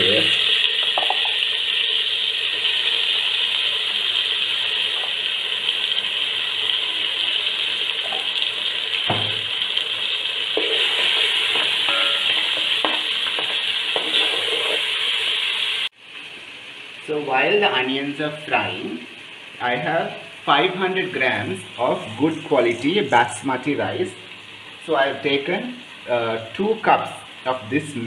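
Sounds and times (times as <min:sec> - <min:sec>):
onions sizzling in hot oil: 0:00.0 - 0:28.0
spoon knocking and scraping pot: 0:00.8 - 0:01.4, 0:10.6 - 0:14.8.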